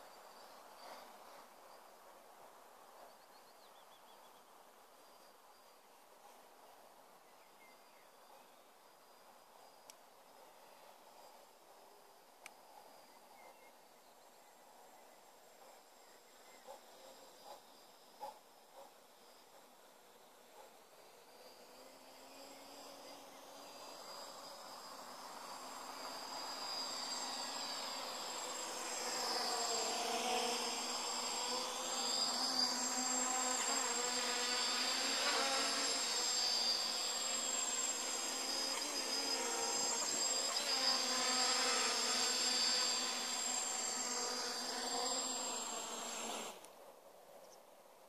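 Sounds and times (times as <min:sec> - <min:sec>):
quadcopter propellers buzzing: 0:20.0 - 0:46.6.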